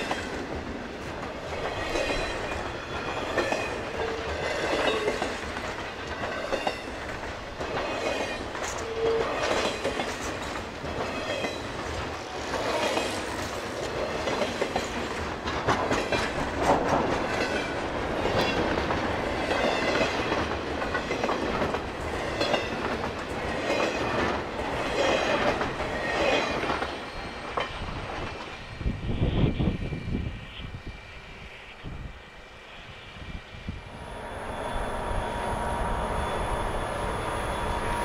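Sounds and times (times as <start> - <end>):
steel wheels clattering over rail joints: 0.0 - 28.6
freight train cars rolling past: 0.0 - 38.0.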